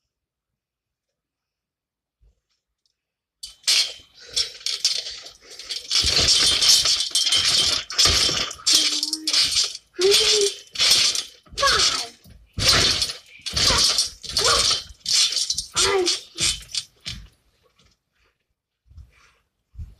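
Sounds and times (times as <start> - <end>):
trampoline springs rattling and creaking: 3.4 - 18.0.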